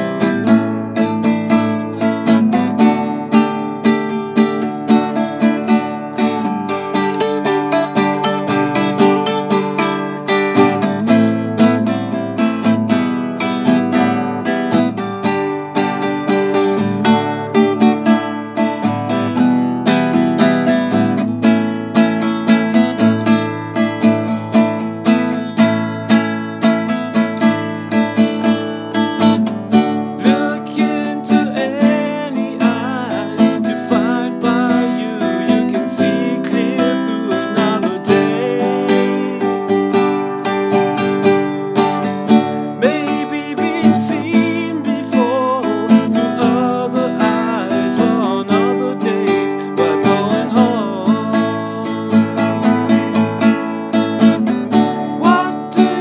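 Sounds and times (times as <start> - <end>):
classical guitar strumming: 0.0 - 56.0
person singing: 27.1 - 53.7, 54.4 - 56.0.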